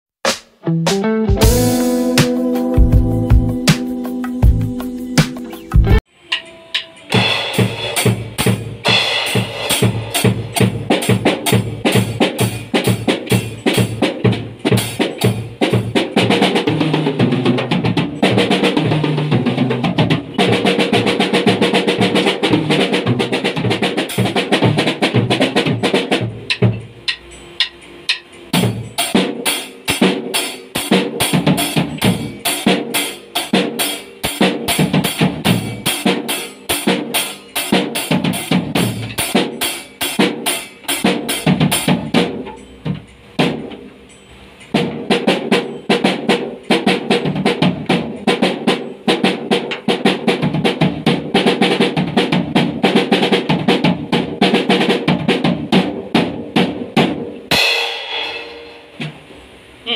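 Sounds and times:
drum kit playing: 0.2 - 59.9
cymbal crashes: 57.5 - 59.0.

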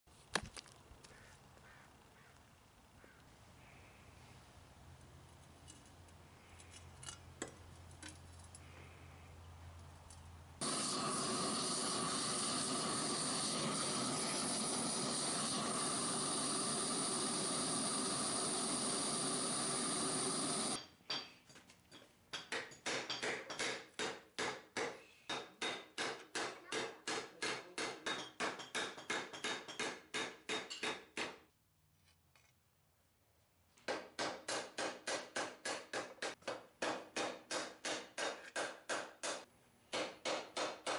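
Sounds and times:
gas torch hissing: 10.6 - 20.8
hammer striking hot steel on anvil: 22.3 - 31.4, 33.9 - 40.9.

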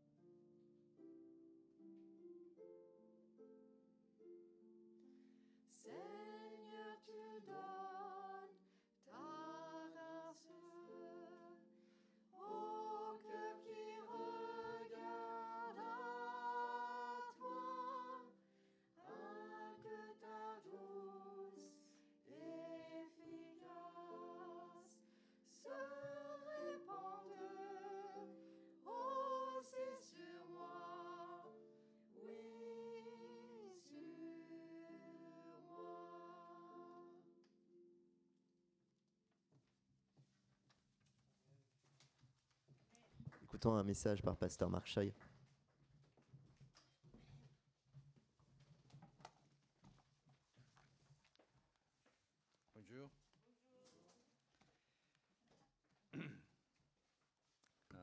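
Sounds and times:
man and woman singing a hymn: 5.8 - 8.5, 12.4 - 18.4, 19.0 - 31.6, 32.2 - 37.1.

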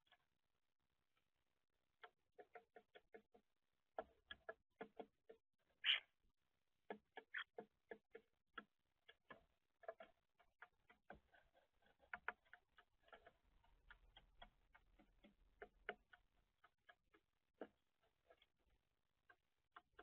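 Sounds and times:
birds pecking at feeder: 2.0 - 3.4, 6.8 - 20.0.

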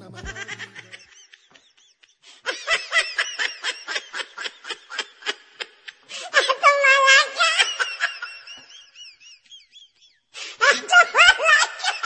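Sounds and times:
person giggling: 0.0 - 5.7.

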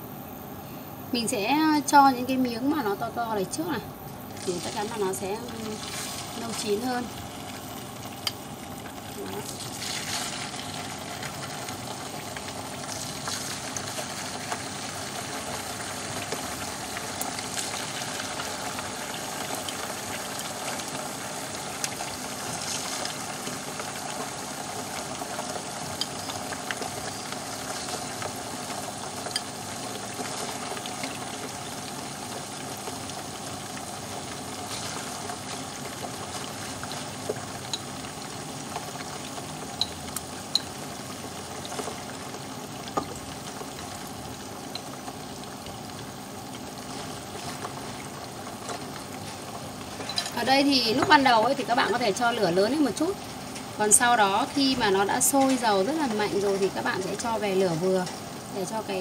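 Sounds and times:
chicken frying in oil: 1.2 - 59.0
crackles and pops of oil: 8.1 - 20.0, 21.7 - 31.8, 32.6 - 40.8, 41.5 - 45.8.

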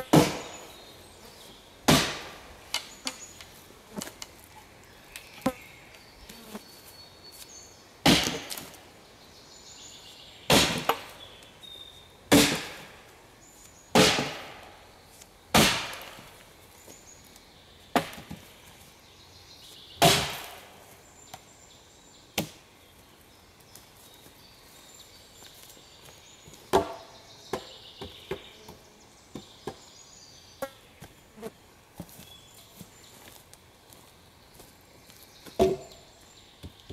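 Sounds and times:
axe chopping a branch: 0.0 - 0.6, 1.9 - 2.9, 8.0 - 8.7, 10.5 - 11.1, 12.3 - 12.9, 13.9 - 14.6, 15.5 - 16.3, 20.0 - 20.6.

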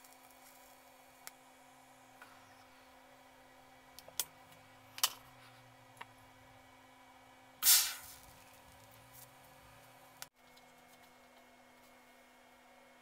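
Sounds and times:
electric welder crackling hiss: 0.0 - 1.4, 7.6 - 10.3
faint steady hum: 0.0 - 13.0.

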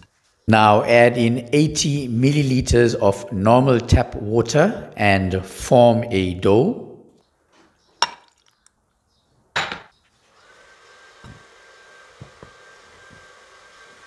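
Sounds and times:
kitchen appliance motor whining: 10.3 - 14.0.

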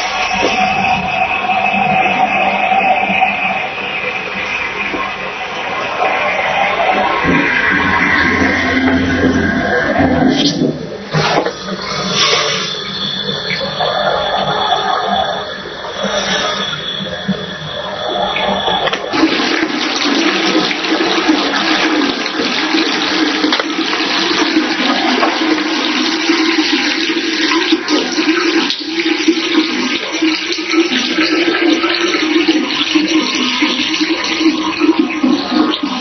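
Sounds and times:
tap water splashing into sink: 18.8 - 36.0.

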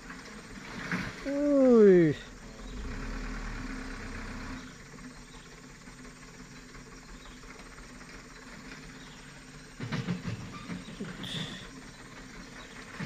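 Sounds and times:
diesel truck engine running low: 0.0 - 13.0
insects buzzing: 4.4 - 13.0.

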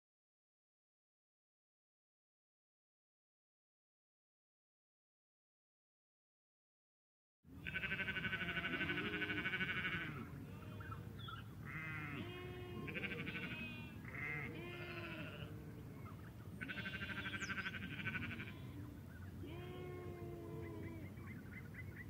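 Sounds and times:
sheep bleating: 7.5 - 11.0, 11.6 - 15.9, 16.5 - 21.3.

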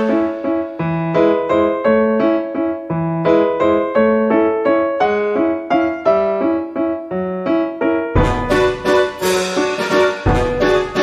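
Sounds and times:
comic waltz on keyboard: 0.0 - 11.0.

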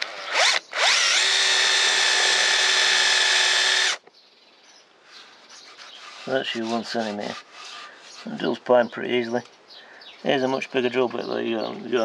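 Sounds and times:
cordless drill boring into wood: 0.0 - 4.0.

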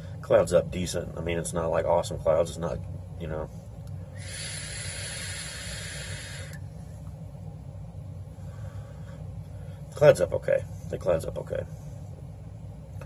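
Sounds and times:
faint exhale: 4.1 - 6.6, 8.4 - 9.9
vape draw hiss: 4.2 - 6.6.

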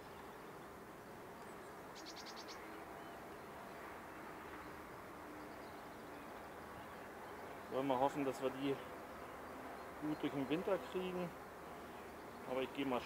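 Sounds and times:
bees droning: 6.2 - 13.0.

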